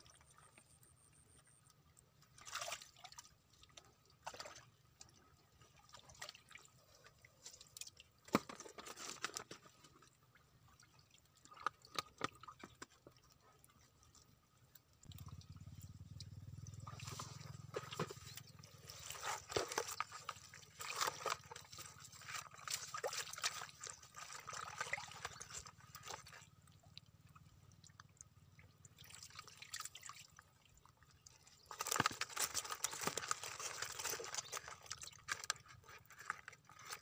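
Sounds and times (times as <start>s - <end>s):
wet rustling of twigs and plastic: 6.0s - 10.2s, 16.8s - 26.5s, 31.3s - 37.0s
low steady hum: 14.4s - 23.0s
water dripping: 14.7s - 21.7s
hands squelching in wet mud: 15.0s - 27.4s.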